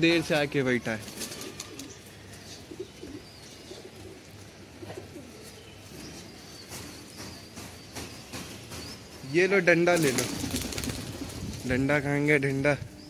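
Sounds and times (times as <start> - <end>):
pigeons cooing: 1.1 - 7.2.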